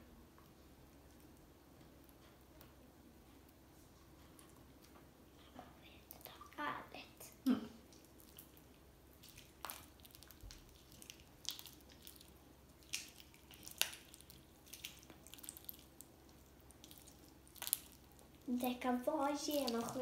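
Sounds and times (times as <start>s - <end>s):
wet slime squishing: 7.8s - 20.0s
sticky slime pops: 9.2s - 15.9s, 16.8s - 18.2s.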